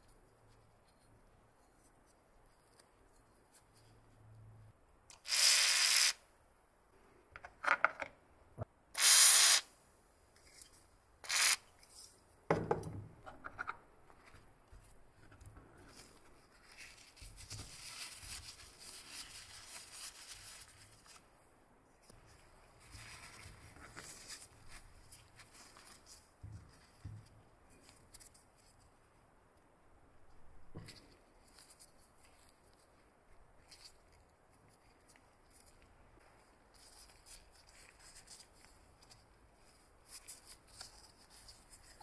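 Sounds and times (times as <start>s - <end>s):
faint steady hiss: 0.0s - 42.0s.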